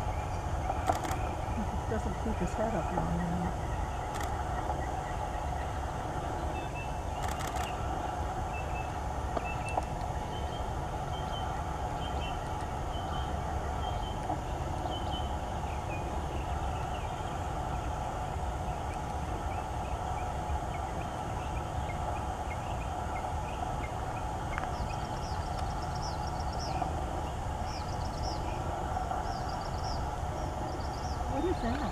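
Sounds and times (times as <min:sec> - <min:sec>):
low outdoor rumble: 0:00.0 - 0:31.9
bird chirps: 0:24.5 - 0:31.9.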